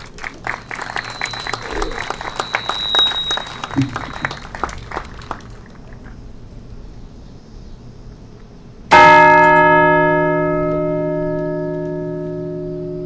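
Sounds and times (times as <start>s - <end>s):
large church bell ringing: 8.9s - 13.0s.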